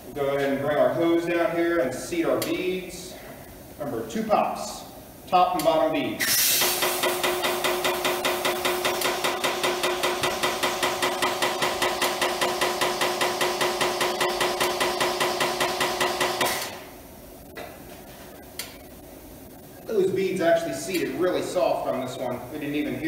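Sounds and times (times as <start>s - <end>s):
compressed air rushing into tire: 6.2s - 7.1s.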